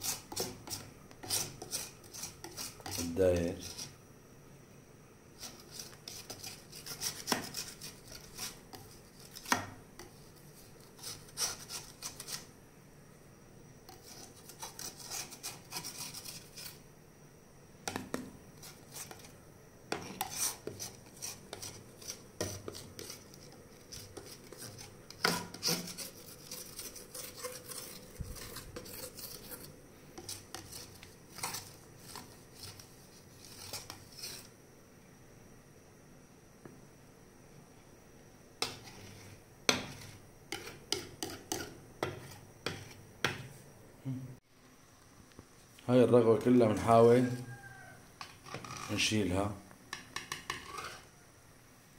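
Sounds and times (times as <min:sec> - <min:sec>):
utensils scraping a metal pot: 0:00.0 - 0:03.9, 0:20.0 - 0:34.5, 0:50.2 - 0:51.1
jam boiling: 0:00.0 - 0:34.7.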